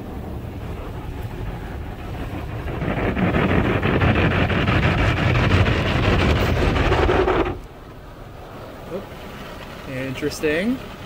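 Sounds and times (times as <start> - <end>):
car wash brush scrubbing a car: 0.0 - 7.7.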